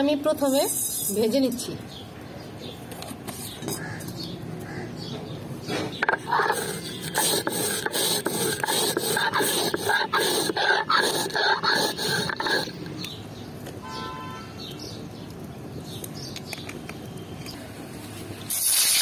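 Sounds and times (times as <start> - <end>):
stone muller scraping on stone slab: 5.7 - 12.8.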